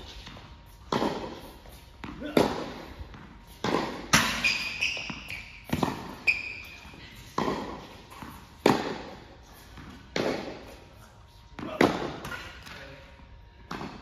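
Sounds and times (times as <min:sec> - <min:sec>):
ball bouncing on hard court: 0:00.1 - 0:10.8, 0:13.6 - 0:14.0
tennis racket hits: 0:02.0 - 0:06.2, 0:07.3 - 0:10.8
shoe squeaks: 0:04.2 - 0:07.1.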